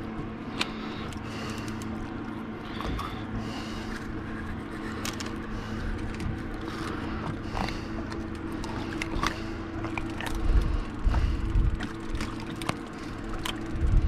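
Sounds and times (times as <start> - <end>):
steady low hum: 0.0 - 14.0
wind rumbling on microphone: 10.2 - 12.4, 13.6 - 14.0.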